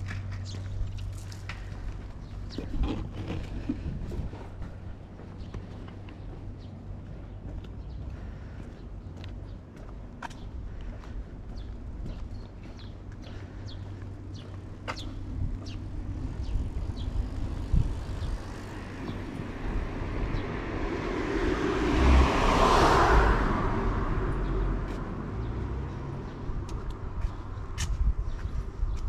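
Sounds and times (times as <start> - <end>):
car driving past: 17.6 - 26.6.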